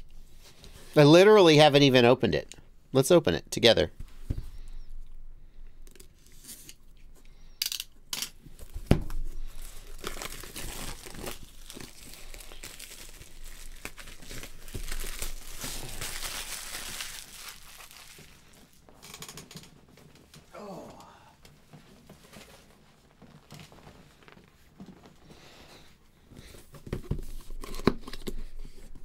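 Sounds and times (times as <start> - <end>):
packaging tearing and crinkling: 8.6 - 19.3.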